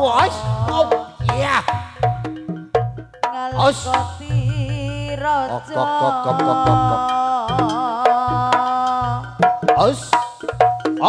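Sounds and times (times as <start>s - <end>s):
hand drums beating: 0.0s - 11.0s
high wavering melody: 5.4s - 8.5s.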